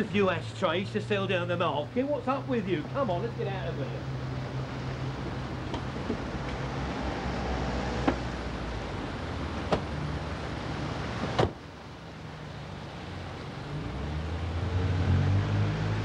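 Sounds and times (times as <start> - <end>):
steady background rumble: 0.0 - 13.7
sharp knocks and thump: 8.0 - 8.3, 9.7 - 9.9.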